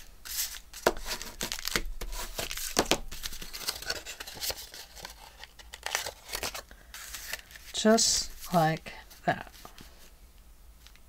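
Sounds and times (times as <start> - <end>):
card rustling and tapping: 0.8 - 7.7.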